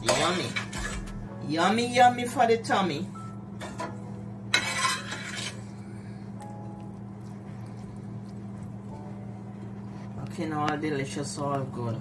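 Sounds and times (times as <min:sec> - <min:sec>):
steady low hum: 0:00.0 - 0:12.0
metal spoon scraping ceramic bowl: 0:04.5 - 0:05.6.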